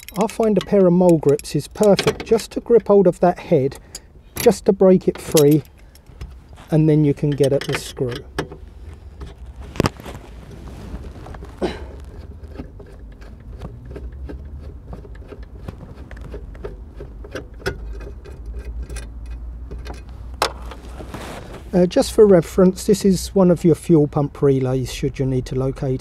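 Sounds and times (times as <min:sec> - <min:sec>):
clicks and knocks of hand tools: 0:00.0 - 0:03.0, 0:07.2 - 0:08.6
low steady rumble: 0:00.0 - 0:26.0.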